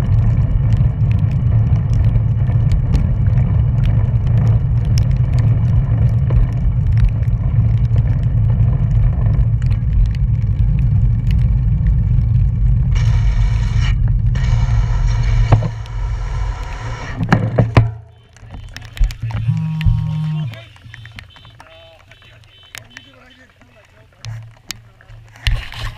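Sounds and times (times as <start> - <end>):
bicycle freewheel hub buzzing: 0.0 - 21.9
wind buffeting microphone: 0.0 - 23.0
sharp knocks: 17.2 - 21.6.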